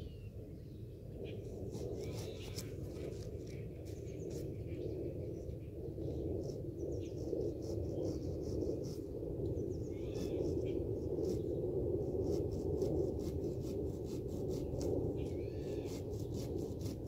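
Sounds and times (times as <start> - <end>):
low outdoor rumble: 0.0 - 17.0.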